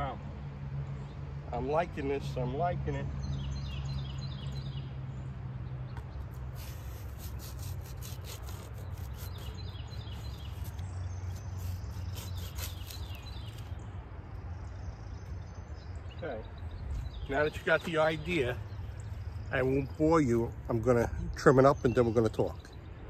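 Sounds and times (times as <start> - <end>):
birds chirping: 0.0 - 23.0
bread knife sawing foam: 6.3 - 13.7.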